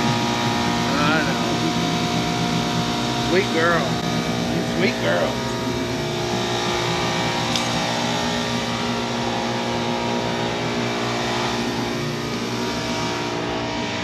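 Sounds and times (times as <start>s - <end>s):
motor droning steadily: 0.0s - 14.0s.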